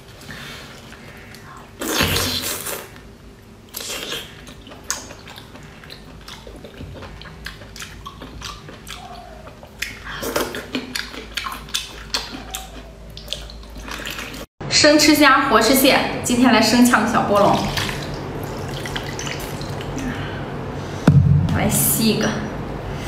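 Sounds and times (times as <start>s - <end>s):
wet slurping: 0.7s - 3.0s, 3.7s - 14.5s, 17.4s - 20.0s
mouth smacking and chewing: 3.7s - 14.5s.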